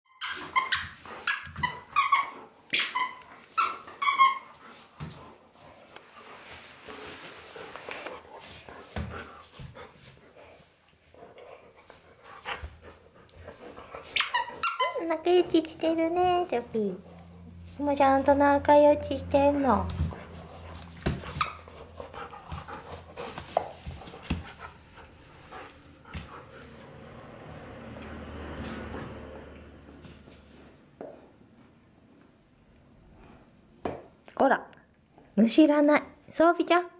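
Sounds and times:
short high toy squeaks: 0.1 - 4.5, 14.2 - 15.0
dog chewing a toy: 11.4 - 15.7, 19.9 - 26.8.

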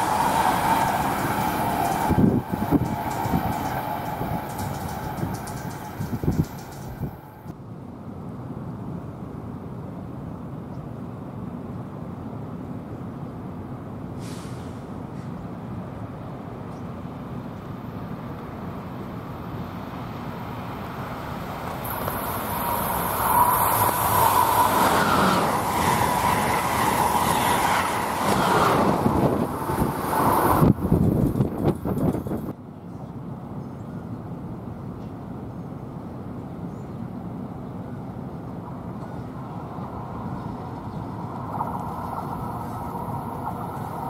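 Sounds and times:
train wheels on rails: 0.0 - 7.5, 19.9 - 32.6, 38.6 - 44.0.

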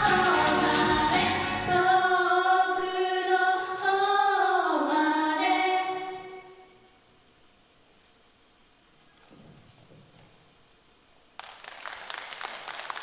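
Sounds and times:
women singing together: 0.0 - 6.6.

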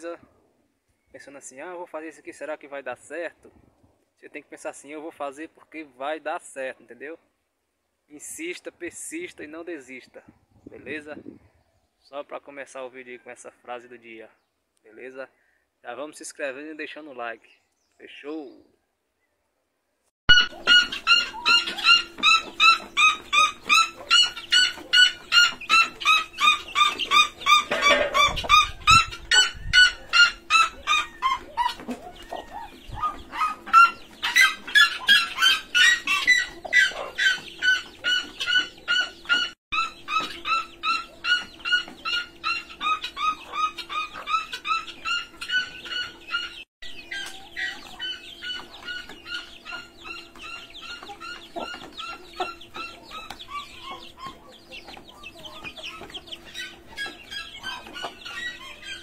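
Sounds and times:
chickens calling: 20.3 - 59.0.

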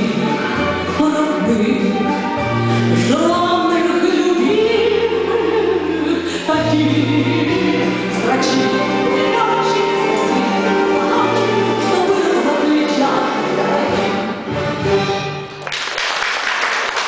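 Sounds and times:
woman singing into microphone: 0.0 - 2.2, 3.0 - 14.2
instrumental accompaniment with bass: 0.0 - 15.6.

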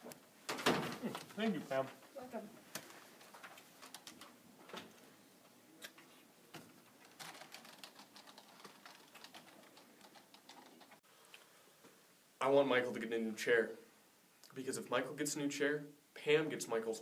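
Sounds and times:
keyboard keys clicking: 7.0 - 11.0.

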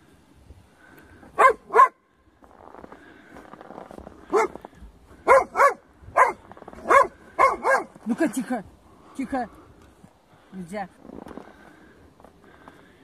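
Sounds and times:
dog barking: 1.4 - 2.0, 4.3 - 4.6, 5.2 - 8.0.

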